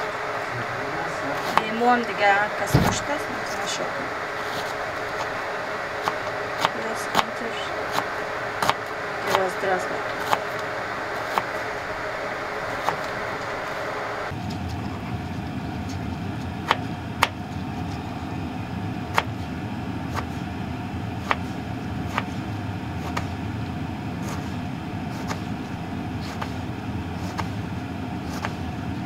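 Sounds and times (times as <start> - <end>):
steady low hum: 0.0 - 29.0
knife slicing vegetables: 1.4 - 1.8, 4.4 - 5.4, 6.0 - 11.6, 12.7 - 13.2, 19.1 - 20.5, 21.2 - 23.4, 24.1 - 25.6, 26.2 - 28.7.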